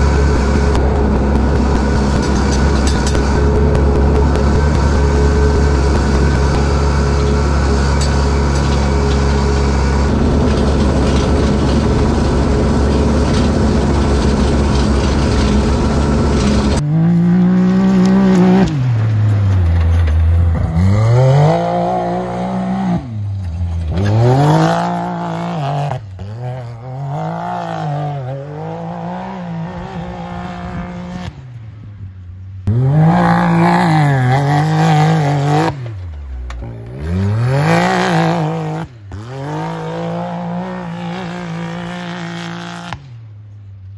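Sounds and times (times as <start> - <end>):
loud engine drone: 0.0 - 31.5
off-road vehicle engine revving: 0.0 - 31.6, 32.6 - 43.3.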